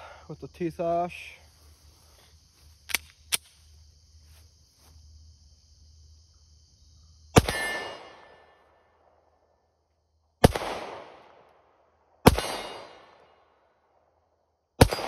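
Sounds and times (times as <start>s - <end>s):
pistol shot with echo: 7.4s - 8.4s, 10.4s - 11.4s, 12.2s - 13.3s, 14.8s - 15.0s.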